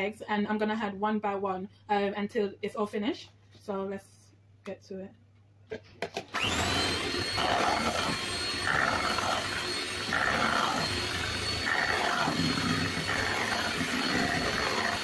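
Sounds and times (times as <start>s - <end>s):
electric hand mixer whining: 6.3s - 15.0s.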